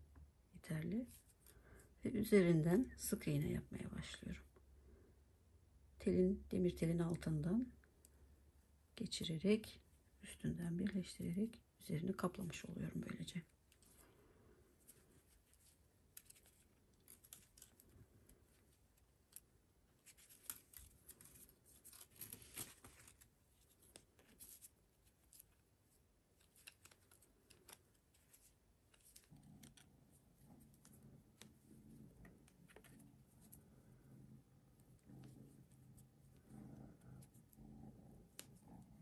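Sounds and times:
faint low hum: 0.0s - 39.0s
crochet hook clicks and scratches: 14.8s - 25.7s, 26.3s - 39.0s.

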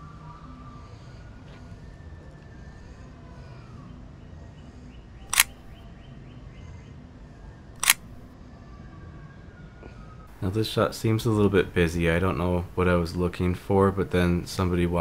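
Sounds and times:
camera shutter clicks: 5.3s - 5.8s, 7.8s - 8.2s.

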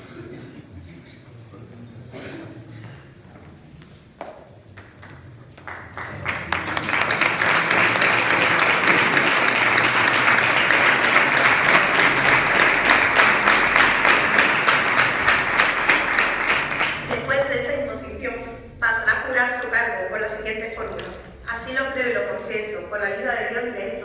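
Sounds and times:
audience applauding: 5.0s - 17.3s.

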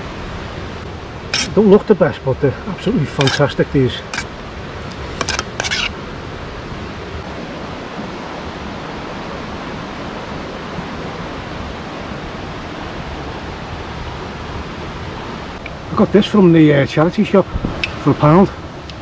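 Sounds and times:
river running over rocks: 0.0s - 16.9s
short scrapes: 1.3s - 1.6s, 3.2s - 3.5s, 4.9s - 5.9s.

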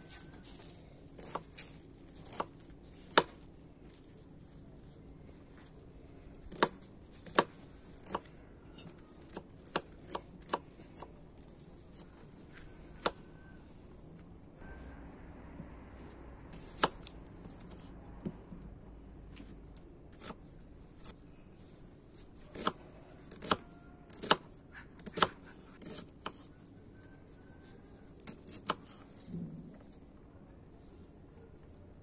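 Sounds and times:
knife chopping on wooden board: 6.5s - 8.3s, 22.5s - 24.4s, 25.0s - 26.4s.

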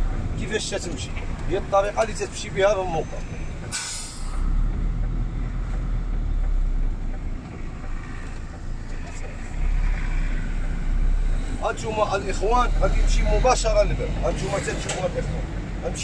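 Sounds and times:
truck diesel engine rumble: 0.0s - 16.0s
short hiss: 3.7s - 4.4s.

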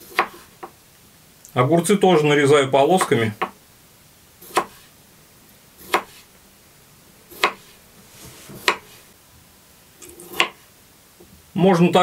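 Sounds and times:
knife slicing cucumbers: 0.0s - 0.8s, 4.4s - 4.9s, 5.8s - 6.3s, 7.3s - 9.0s, 10.0s - 10.6s.

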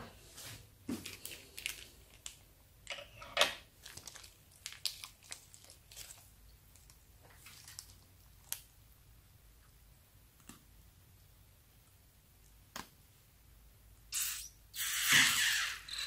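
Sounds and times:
plastic bag crinkling: 1.0s - 2.4s, 3.8s - 8.6s
slime crackling and snapping: 3.8s - 7.0s.

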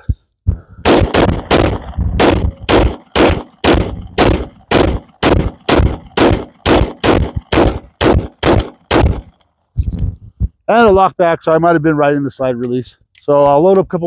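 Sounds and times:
pistol shots: 0.8s - 9.4s.

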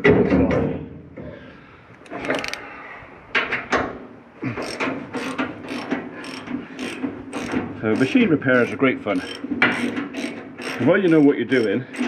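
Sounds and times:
ratchet spanner clicking: 4.6s - 12.0s.

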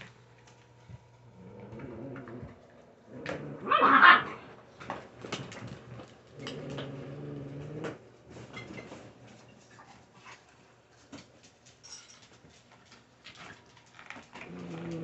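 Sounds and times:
dog crying: 3.6s - 4.4s
puppies chewing: 9.5s - 15.0s.

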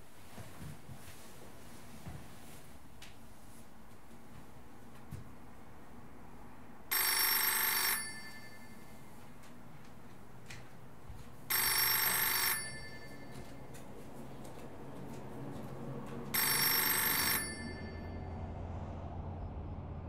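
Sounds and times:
telephone ringing: 6.9s - 9.4s, 11.5s - 14.0s, 16.3s - 18.4s.

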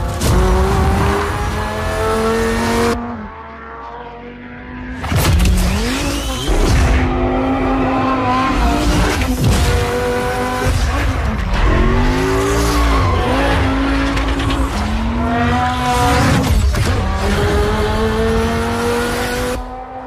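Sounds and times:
car engine revving: 0.0s - 20.0s.

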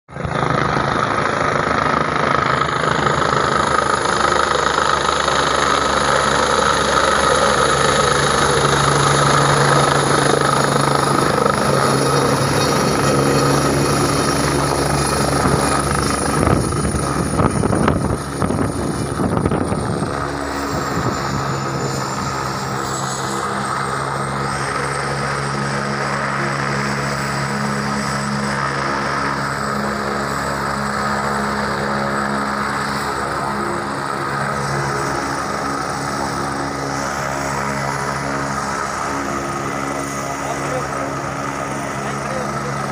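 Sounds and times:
helicopter rotor and turbine engine: 0.1s - 42.9s
high thin turbine whine: 0.1s - 42.9s
wind buffeting microphone: 0.2s - 22.0s.

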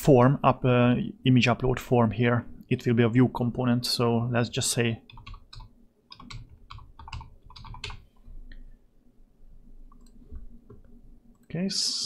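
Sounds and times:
computer keyboard typing: 5.1s - 8.2s, 9.9s - 11.5s.

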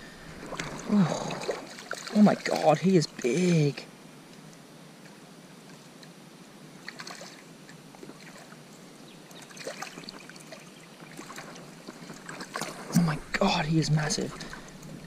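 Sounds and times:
fish splashing in shallow water: 0.0s - 3.4s, 6.8s - 13.4s.

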